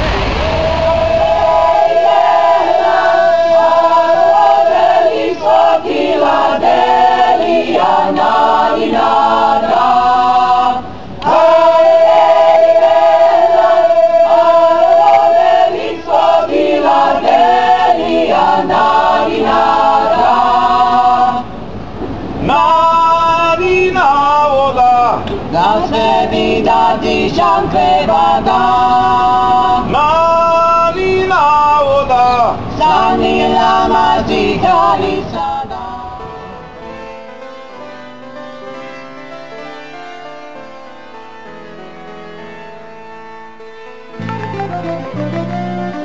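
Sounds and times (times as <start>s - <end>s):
group singing in harmony: 0.0s - 37.0s.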